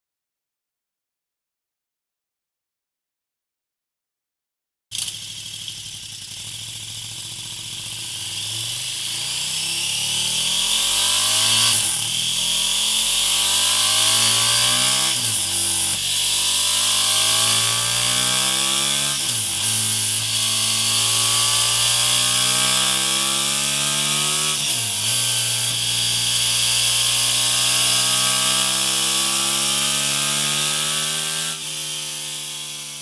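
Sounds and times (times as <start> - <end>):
motorcycle engine revving: 4.9 - 33.0.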